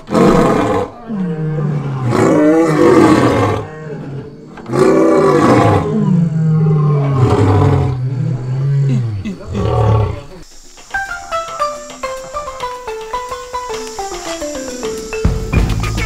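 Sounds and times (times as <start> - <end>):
lion low calls: 0.0 - 10.4
lion roaring: 0.0 - 10.4.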